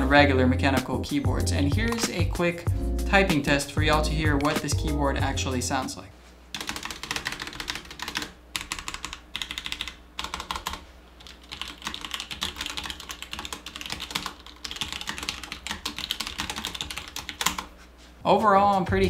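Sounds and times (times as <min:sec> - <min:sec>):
mechanical keyboard keystrokes: 0:06.6 - 0:17.6.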